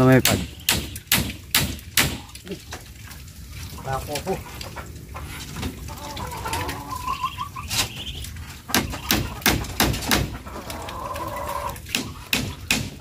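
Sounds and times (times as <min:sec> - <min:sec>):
hammer knocking bamboo slats: 0:00.0 - 0:02.4, 0:08.7 - 0:10.4, 0:11.9 - 0:13.0
bird chirping: 0:06.8 - 0:09.4.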